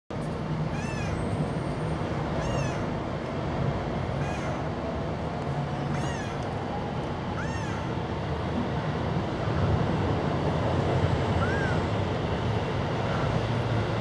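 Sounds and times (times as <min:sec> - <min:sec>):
kitten mewing: 0:00.7 - 0:01.2, 0:02.4 - 0:02.9, 0:04.2 - 0:04.7, 0:05.9 - 0:06.4, 0:07.4 - 0:08.0, 0:11.4 - 0:11.8.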